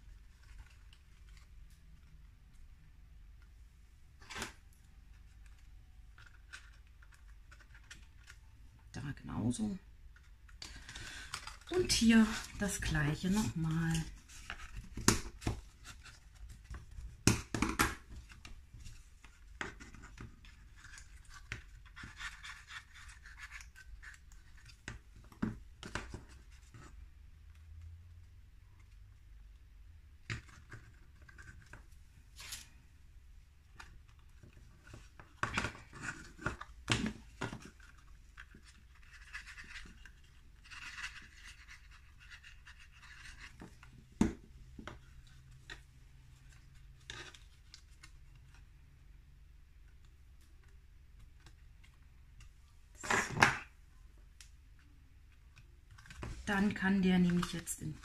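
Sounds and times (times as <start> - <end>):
paper rustling: 30.3 - 33.0, 33.6 - 48.8.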